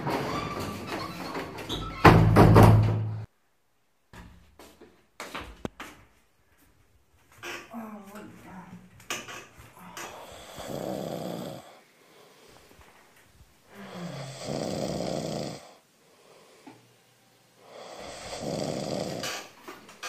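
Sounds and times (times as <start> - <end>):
man snoring: 10.1 - 12.4, 13.7 - 16.8, 17.6 - 19.6.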